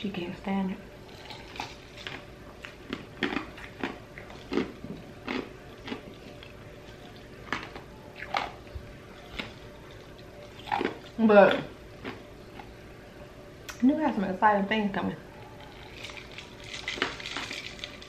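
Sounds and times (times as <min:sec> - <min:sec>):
crushed ice being chewed: 0:01.0 - 0:12.7, 0:15.3 - 0:18.0.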